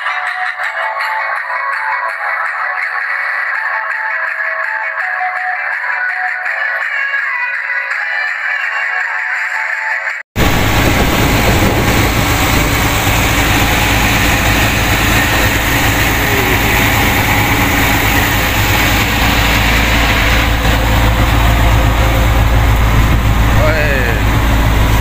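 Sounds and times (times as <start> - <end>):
boat engine droning: 10.4 - 25.0
loud rushing noise: 10.4 - 25.0.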